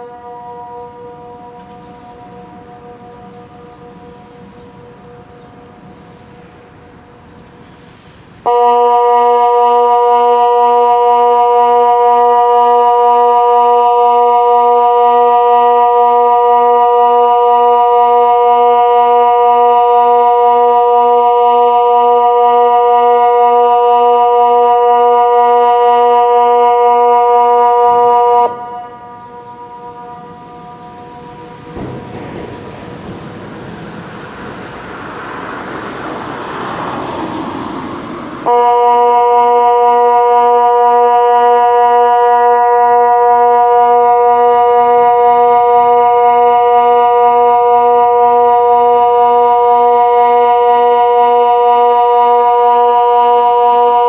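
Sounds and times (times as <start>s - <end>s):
electronic siren steady deep tone: 0.0s - 6.0s, 8.4s - 54.0s
rushing noise: 28.5s - 39.8s.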